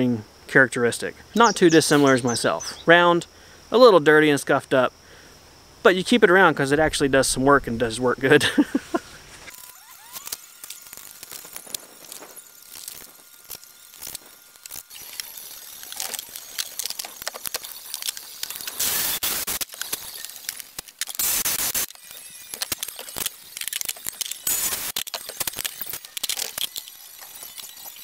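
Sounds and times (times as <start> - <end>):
hard objects clicking and clinking: 9.5 - 28.0.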